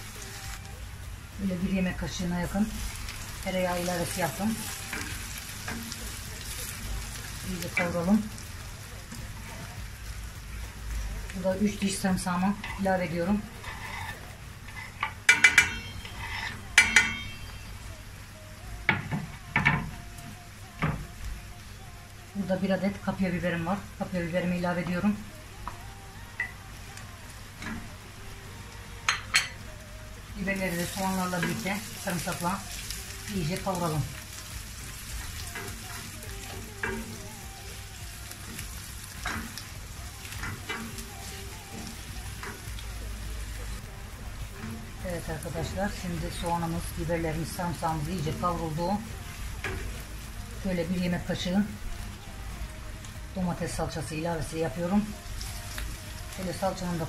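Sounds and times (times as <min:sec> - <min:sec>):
onions sizzling in oil: 0:00.0 - 0:57.0
wooden spoon scraping pot: 0:13.6 - 0:15.2, 0:15.8 - 0:16.7
garlic clinking against steel pot: 0:14.9 - 0:17.4.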